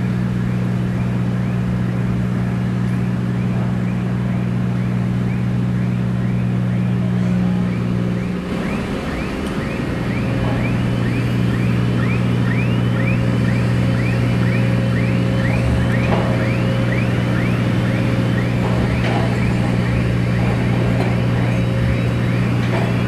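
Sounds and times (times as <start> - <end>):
heavy machinery humming: 0.0 - 23.0
electronic warning chirp: 2.8 - 23.0.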